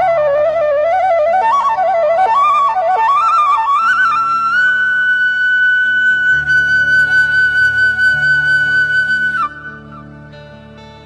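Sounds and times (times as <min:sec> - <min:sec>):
flute melody: 0:00.0 - 0:10.9
soft low drone: 0:06.1 - 0:11.0.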